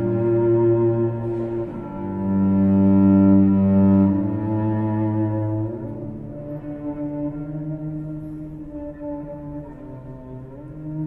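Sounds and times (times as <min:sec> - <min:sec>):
bowed cello notes: 0:00.0 - 0:11.0.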